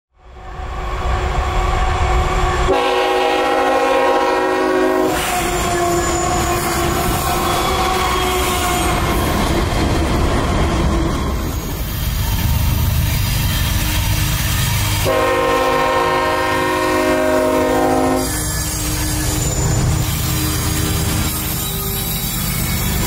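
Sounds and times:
freight train rumbling and rattling: 0.2s - 23.0s
train air horn blast: 2.7s - 9.2s, 14.8s - 19.6s.

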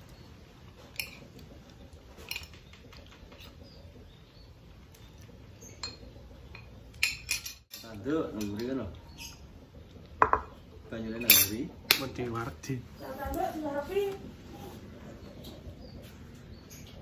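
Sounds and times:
metal spoon clinking on plate: 11.2s - 11.6s.

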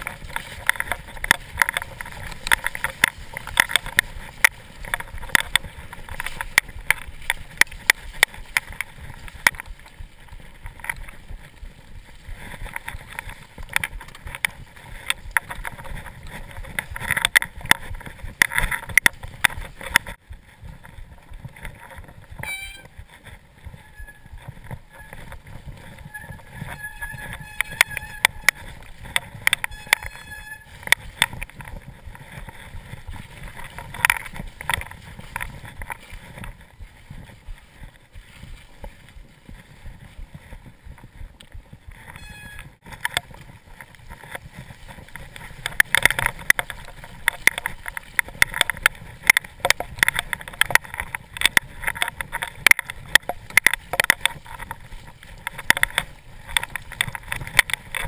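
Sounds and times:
mountain bike rattling: 0.0s - 58.0s
tyre rumble: 0.0s - 58.0s
sharp knocks and clicks: 24.4s - 36.6s, 41.4s - 58.0s.

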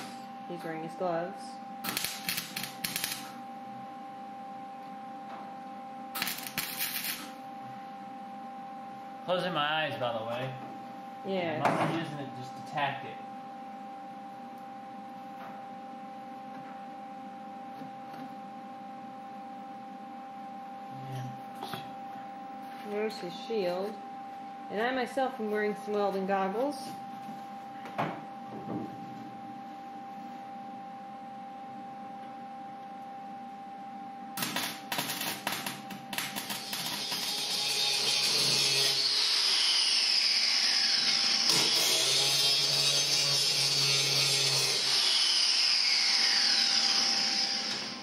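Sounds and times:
welder humming: 0.0s - 4.9s, 5.6s - 9.8s, 34.4s - 48.0s
electrical hum: 0.0s - 48.0s
welding arc crackling and sizzling: 1.8s - 3.4s, 6.1s - 7.4s, 34.4s - 48.0s.

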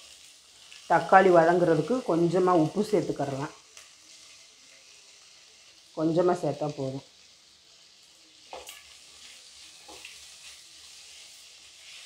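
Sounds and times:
food sizzling in oil: 0.0s - 12.0s
wooden spatula scraping a pan: 8.4s - 12.0s.

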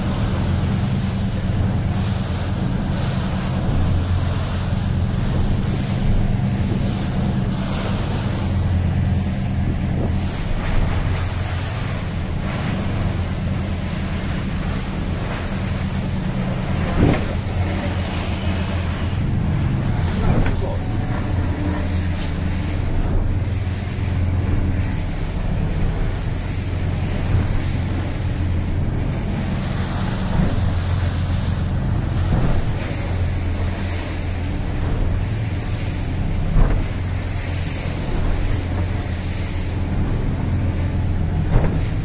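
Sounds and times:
boat engine droning: 0.0s - 42.0s
hull thudding on waves: 0.0s - 42.0s
water rushing against hull: 0.0s - 42.0s.

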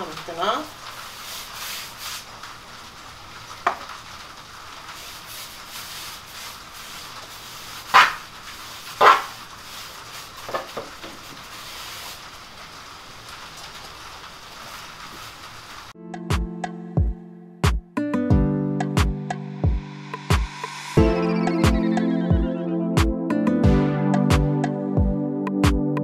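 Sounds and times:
rain pattering: 0.0s - 16.0s
paintbrush brushing paint: 1.1s - 2.3s, 5.0s - 10.5s.

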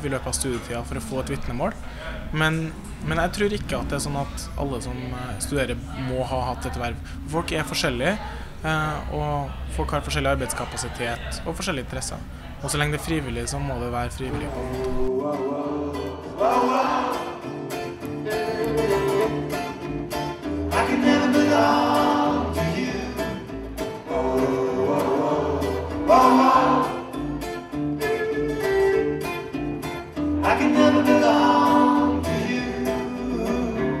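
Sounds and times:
strummed acoustic guitars: 14.3s - 34.0s
person singing: 14.5s - 29.5s, 30.4s - 34.0s
double bass: 15.8s - 34.0s.

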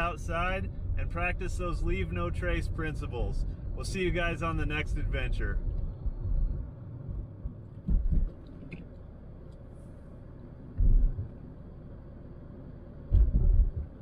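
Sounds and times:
car road noise rumble: 0.0s - 14.0s
heavy low thumps: 4.8s - 8.4s, 10.8s - 11.3s, 13.1s - 14.0s.

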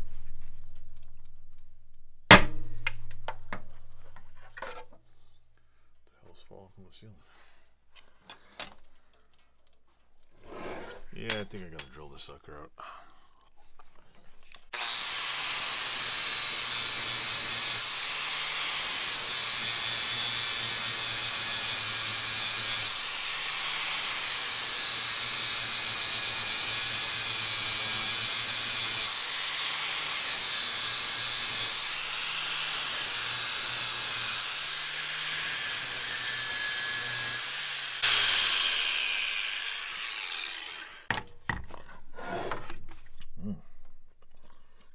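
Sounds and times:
angle grinder grinding metal: 14.6s - 41.2s.

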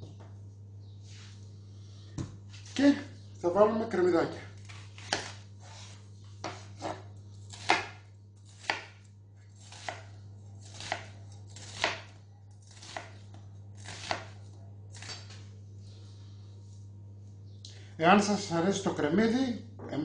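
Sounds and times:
knife chopping on wooden board: 5.0s - 5.4s, 6.4s - 13.2s, 13.8s - 15.2s.

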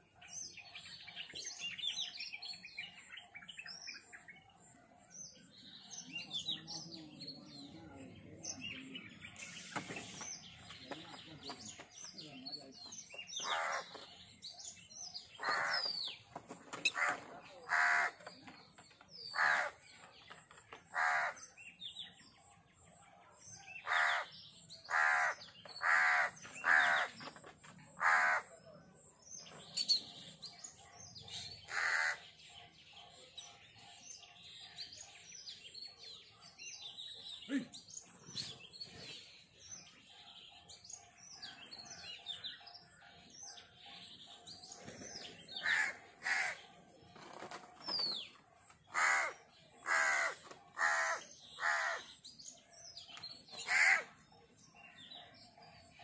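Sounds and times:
small birds chirping: 0.0s - 56.0s
crows cawing: 13.4s - 13.9s, 15.4s - 15.8s, 17.0s - 18.2s, 19.3s - 19.8s, 20.9s - 21.4s, 23.8s - 24.3s, 24.9s - 27.1s, 28.0s - 28.5s, 31.7s - 32.3s, 45.6s - 46.6s, 48.9s - 52.2s, 53.6s - 54.2s.

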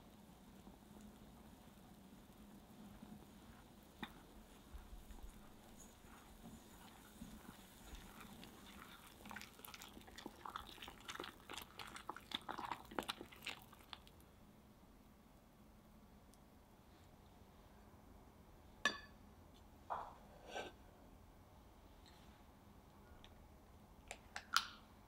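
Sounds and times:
whisk stirring thick batter: 2.9s - 14.1s.

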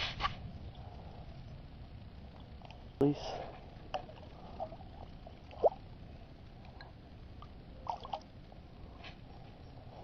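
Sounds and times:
small drips and splashes: 6.6s - 8.3s.

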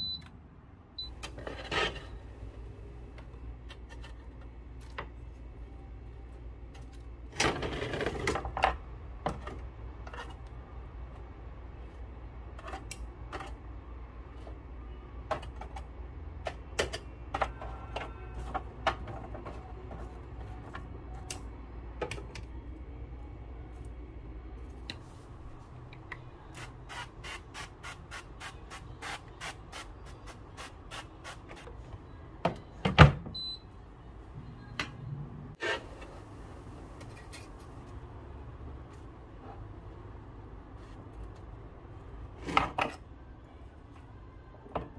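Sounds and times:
low steady hum: 0.0s - 26.7s.

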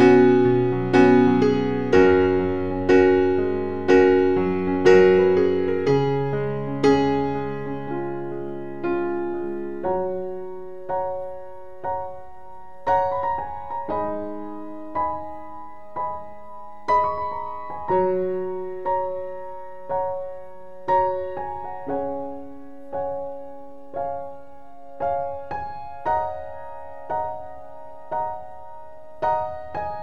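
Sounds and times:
gentle piano music: 0.0s - 30.0s.

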